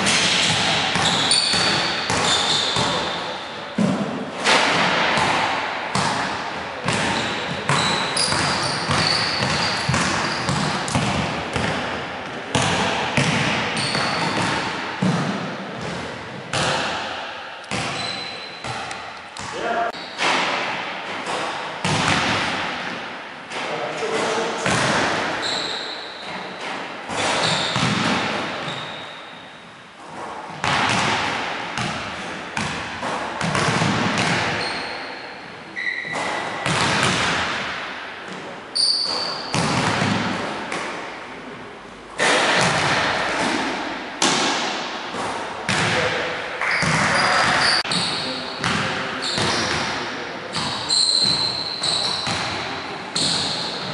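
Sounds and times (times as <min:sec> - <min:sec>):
basketballs bouncing on hardwood floor: 0:00.0 - 0:03.1, 0:03.8 - 0:17.0, 0:17.7 - 0:19.5, 0:21.8 - 0:23.0, 0:24.6 - 0:25.6, 0:27.1 - 0:29.0, 0:30.1 - 0:34.9, 0:35.8 - 0:40.5, 0:44.2 - 0:46.1, 0:46.7 - 0:49.9, 0:50.5 - 0:52.6
sneakers squeaking: 0:00.0 - 0:04.0, 0:04.8 - 0:16.9, 0:17.7 - 0:20.2, 0:24.2 - 0:31.2, 0:32.6 - 0:37.6, 0:38.7 - 0:40.7, 0:45.2 - 0:53.9.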